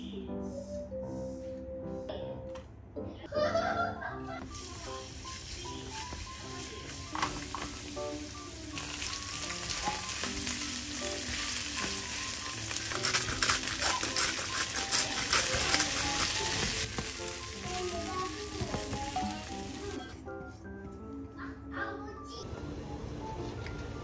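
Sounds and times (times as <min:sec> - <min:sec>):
soft background music: 0:00.0 - 0:24.0
food sizzling in oil: 0:04.4 - 0:20.0
spatula stirring clicks and rattles: 0:12.6 - 0:16.9.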